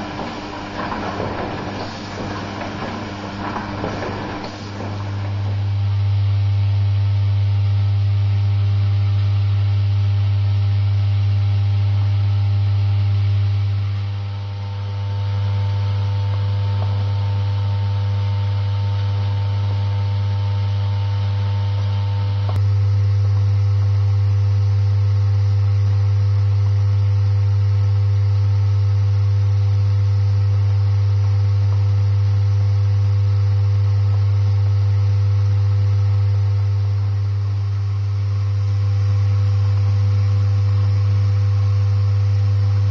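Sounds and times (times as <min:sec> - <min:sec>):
vibratory feeders humming: 0:00.0 - 0:07.5.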